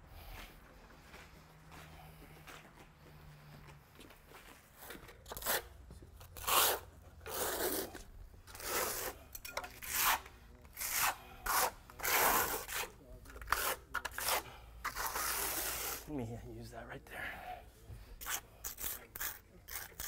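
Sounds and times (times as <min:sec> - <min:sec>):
trowel scraping cement: 0:06.3 - 0:16.1, 0:18.2 - 0:20.0.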